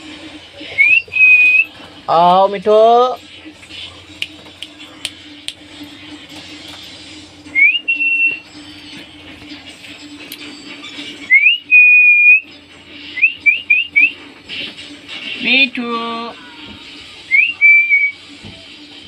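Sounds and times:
rising whistles: 0:00.7 - 0:01.8, 0:07.5 - 0:08.6, 0:11.2 - 0:14.3, 0:17.3 - 0:18.3.

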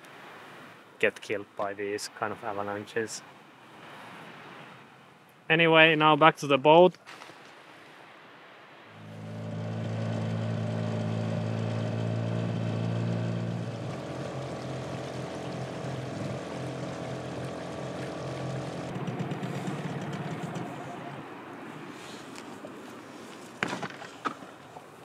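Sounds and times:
outboard motor running: 0:09.0 - 0:21.2.

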